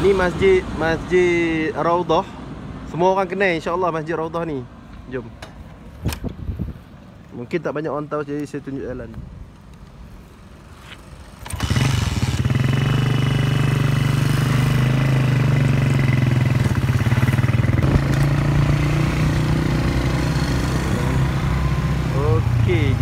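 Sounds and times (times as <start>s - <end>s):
small motorcycle engine running: 11.4s - 21.2s.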